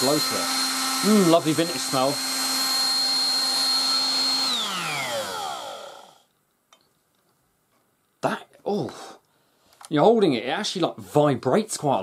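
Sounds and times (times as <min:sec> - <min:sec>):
hairdryer fan whining: 0:00.0 - 0:06.3
motor winding down: 0:00.0 - 0:06.3.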